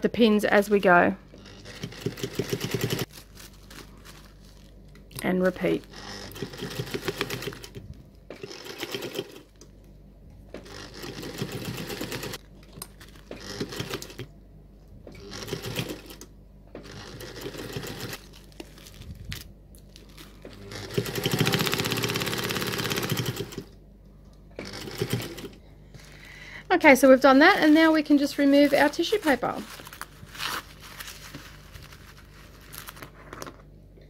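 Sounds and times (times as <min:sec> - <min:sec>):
sewing machine stitching: 0:01.3 - 0:03.1, 0:05.7 - 0:09.6, 0:10.6 - 0:12.4, 0:13.3 - 0:14.3, 0:15.1 - 0:16.2, 0:16.8 - 0:18.2, 0:20.4 - 0:23.8, 0:24.6 - 0:25.6.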